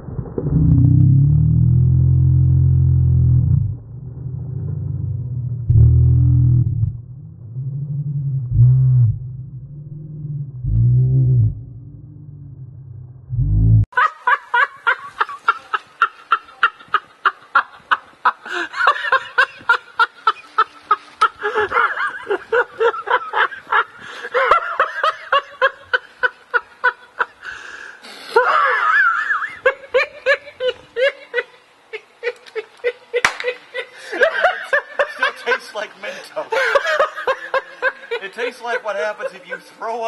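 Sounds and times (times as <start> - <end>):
low rumble: 0.0 - 13.9
person laughing hard: 18.4 - 26.3, 28.4 - 31.2.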